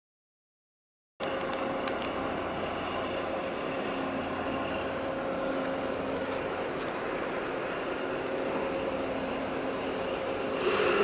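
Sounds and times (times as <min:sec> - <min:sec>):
ship engines droning: 0:01.2 - 0:11.0.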